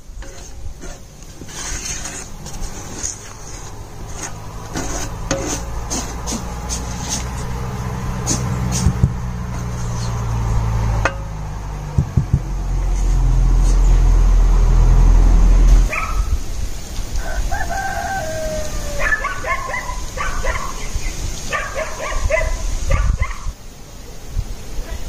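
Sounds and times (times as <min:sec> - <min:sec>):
sharp knocks: 0:08.3 - 0:09.2, 0:11.0 - 0:12.6
rooster crowing: 0:17.1 - 0:19.9.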